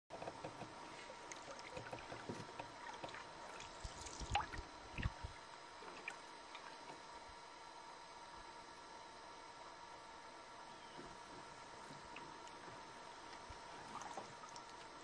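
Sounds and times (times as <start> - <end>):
paddle drips and splashes: 0.9 - 6.9, 13.2 - 15.0.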